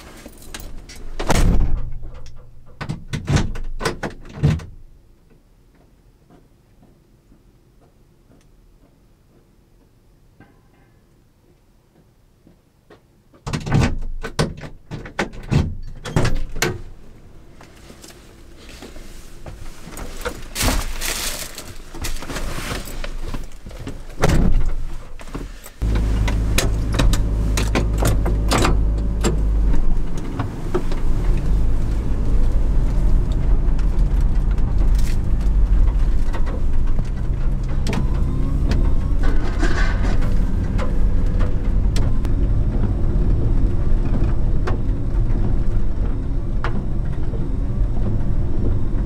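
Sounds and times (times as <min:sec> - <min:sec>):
knocks and clicks in truck cab: 0:00.5 - 0:05.0, 0:12.9 - 0:16.9, 0:23.6 - 0:31.4, 0:33.3 - 0:42.9
truck door shutting: 0:01.2 - 0:04.8, 0:25.8 - 0:32.4, 0:34.5 - 0:42.3
small truck engine running: 0:25.8 - 0:49.0.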